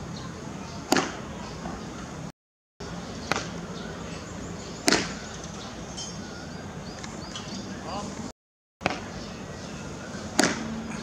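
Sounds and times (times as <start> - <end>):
paddle striking ball: 0.9 - 1.2, 4.8 - 5.1, 10.4 - 10.7.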